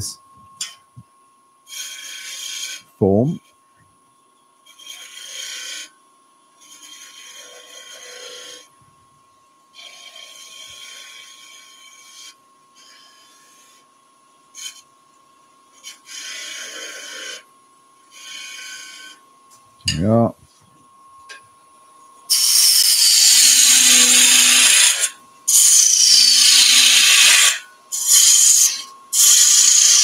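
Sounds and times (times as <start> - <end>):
faint steady whine: 0.0 - 30.0
lathe tool cutting wood: 22.3 - 30.0.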